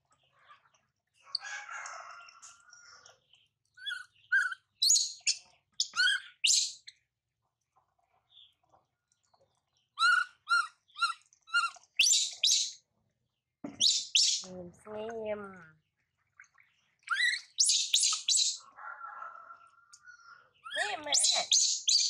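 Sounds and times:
baby monkey chirping squeaks: 3.8 - 6.9, 10.0 - 12.8, 13.8 - 14.5, 17.1 - 18.6, 20.6 - 22.0.

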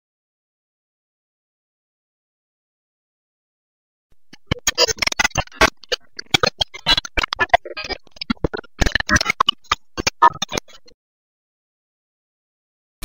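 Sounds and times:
glitch static crackles: 4.2 - 10.9.

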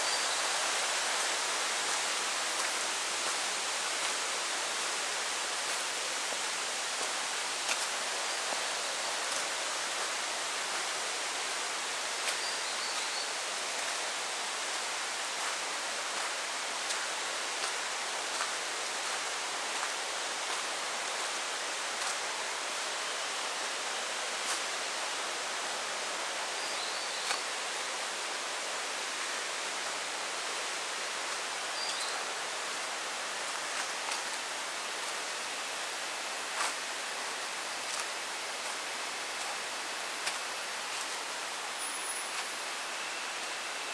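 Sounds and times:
forest ambience hiss: 0.0 - 43.9.

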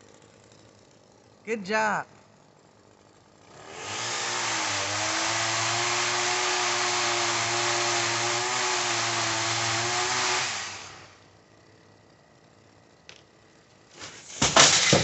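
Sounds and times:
pole saw motor whining: 3.4 - 11.2.

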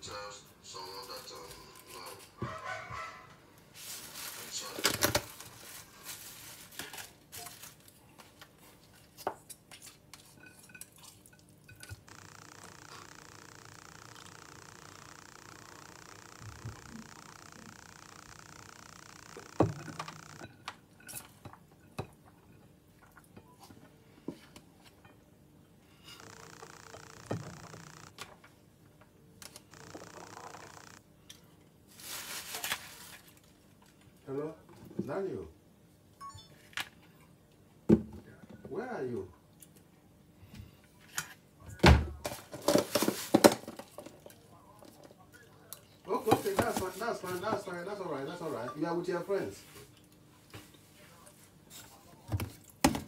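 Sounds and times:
dishes and cutlery clattering: 9.8 - 12.0.

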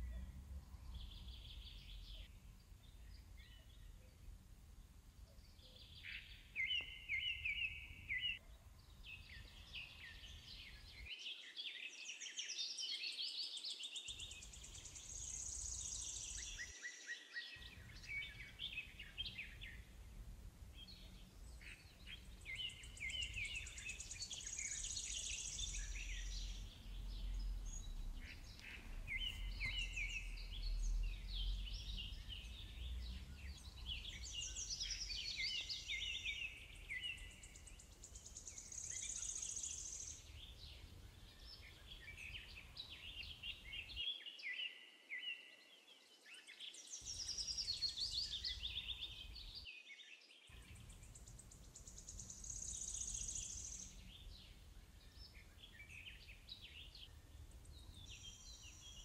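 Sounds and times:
faint low rumble: 0.0 - 11.0, 17.6 - 39.2
birds chirping and trilling: 0.0 - 45.7, 46.3 - 49.7, 50.4 - 59.0.

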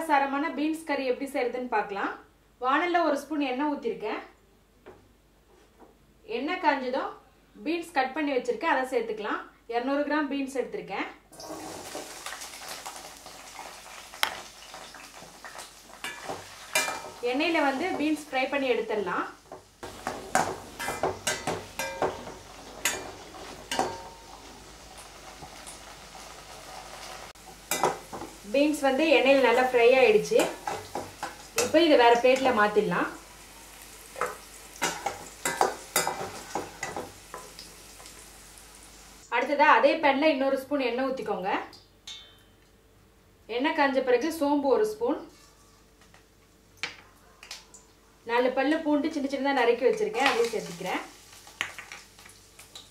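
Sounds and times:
green beans sizzling in hot oil: 11.4 - 39.3, 49.3 - 52.9
metal spatula scraping a pan: 19.9 - 24.6, 34.2 - 37.5.

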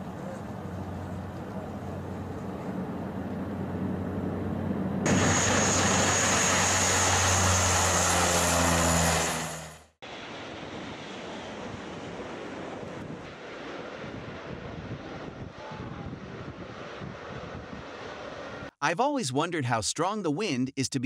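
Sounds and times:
propeller drone: 0.0 - 10.0
high turbine whine: 1.8 - 10.4.

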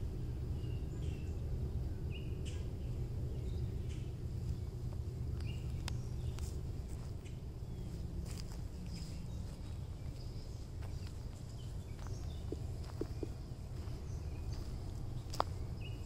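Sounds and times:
small birds chirping: 0.0 - 16.0
steady low rumble: 0.0 - 16.0
footsteps crunching on mulch: 4.4 - 16.0.

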